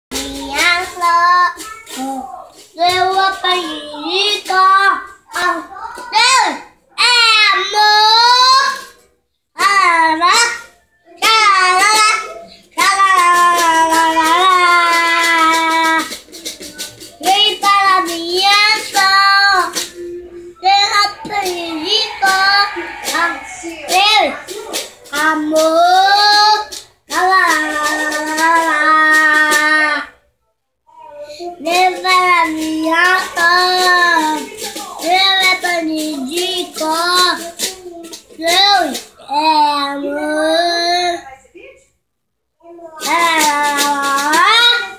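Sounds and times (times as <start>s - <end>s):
boy singing: 0.1s - 8.9s, 9.6s - 30.2s, 31.0s - 41.2s, 42.6s - 44.9s
guitar strumming: 16.0s - 25.9s.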